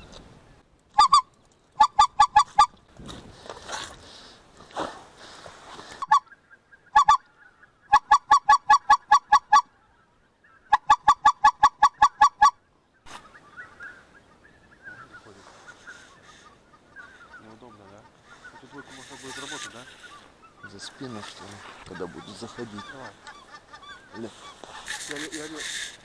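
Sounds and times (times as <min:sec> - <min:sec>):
goose honking: 0:15.0 - 0:25.9.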